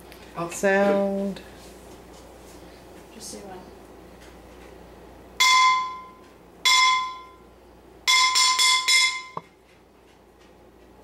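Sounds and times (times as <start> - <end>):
ringing metal object struck: 5.4 - 7.4, 8.1 - 9.4.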